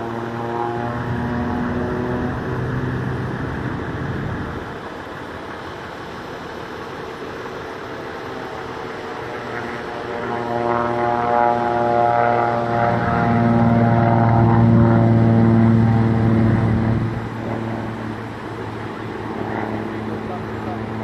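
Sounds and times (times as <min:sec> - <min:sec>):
propeller airplane engine droning: 0:00.0 - 0:21.0.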